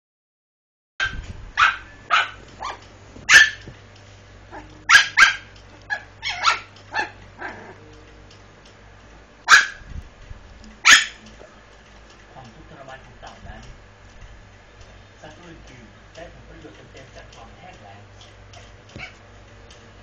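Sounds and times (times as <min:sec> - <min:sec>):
puppies yapping: 0:01.0 - 0:03.7, 0:04.5 - 0:07.8, 0:09.4 - 0:09.8, 0:10.8 - 0:11.2, 0:18.9 - 0:19.2.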